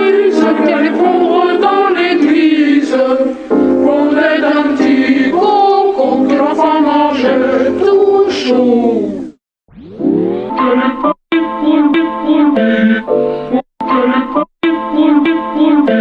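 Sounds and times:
choir singing: 0:00.0 - 0:09.4.

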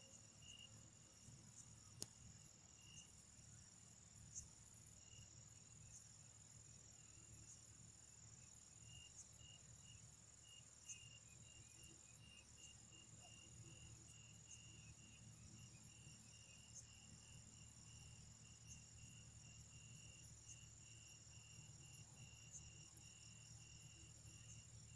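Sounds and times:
cricket chirping in pulses: 0:00.0 - 0:24.9.

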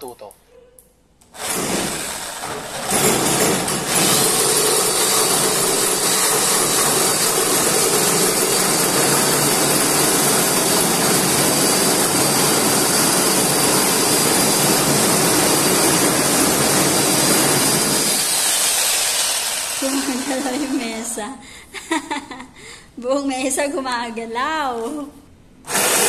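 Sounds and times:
reciprocating saw cutting wood: 0:01.4 - 0:21.0, 0:25.7 - 0:26.0.

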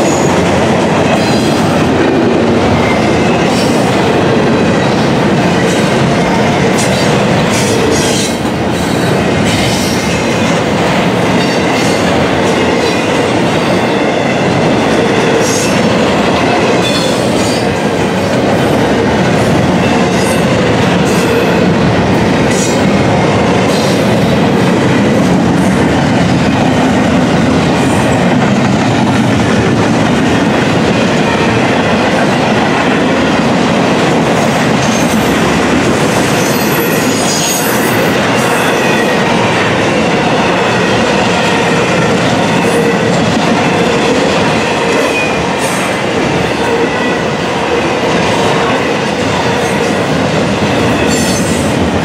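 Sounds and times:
train wheels rumbling on rail: 0:00.0 - 0:52.0.

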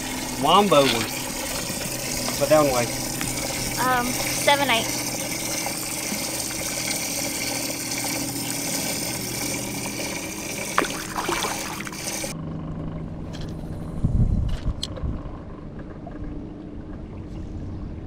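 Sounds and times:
water trickling and splashing: 0:00.0 - 0:12.4
steady hum: 0:00.0 - 0:18.0.

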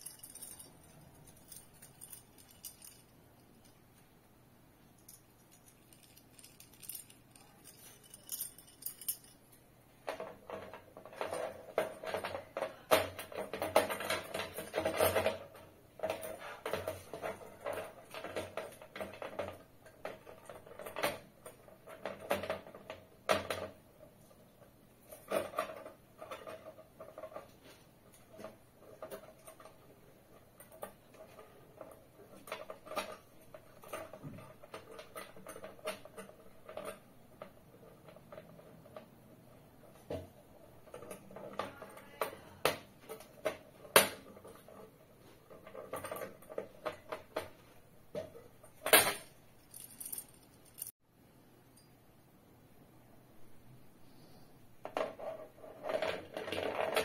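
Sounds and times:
light metallic clinks: 0:00.0 - 0:03.8, 0:05.0 - 0:09.6, 0:49.0 - 0:51.0.

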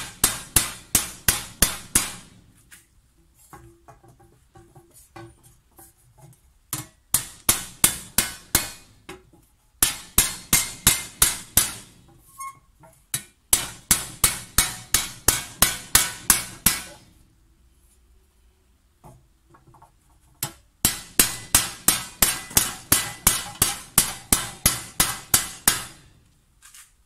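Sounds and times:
hammer blows on copper sheet: 0:00.0 - 0:02.5, 0:09.8 - 0:12.1, 0:13.5 - 0:17.1, 0:20.8 - 0:26.2.

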